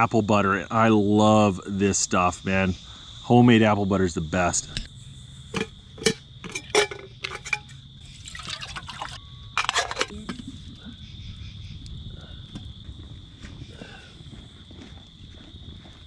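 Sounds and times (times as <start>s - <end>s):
crickets chirping: 0.0s - 16.0s
metal pot and lid clinking: 5.5s - 10.2s
liquid pouring into metal pot: 6.5s - 10.1s.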